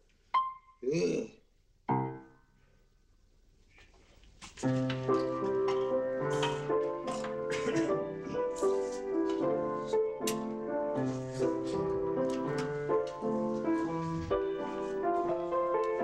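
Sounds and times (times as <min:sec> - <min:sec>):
piano music: 0:00.4 - 0:00.8, 0:01.9 - 0:02.4, 0:04.6 - 0:16.0.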